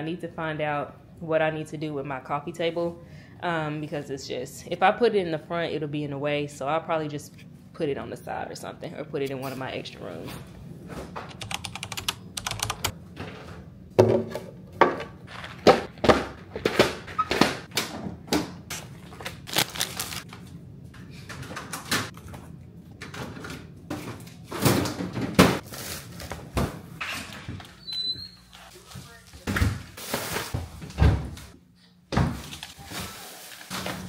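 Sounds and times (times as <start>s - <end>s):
packages being handled and set down: 29.4s - 31.4s.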